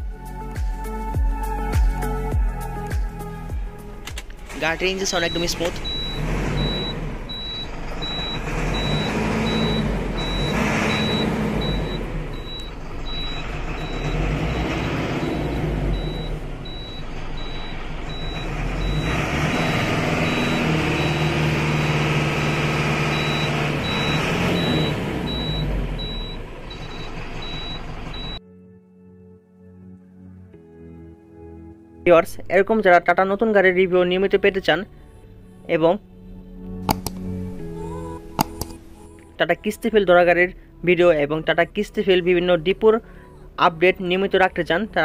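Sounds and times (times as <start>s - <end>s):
diesel engine idling: 2.6s - 28.4s
electronic warning beep: 4.8s - 28.4s.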